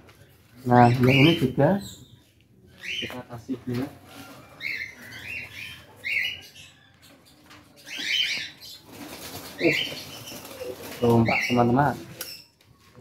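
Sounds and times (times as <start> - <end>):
cockatiels chirping: 4.6 - 6.8
wings fluttering: 7.4 - 12.3.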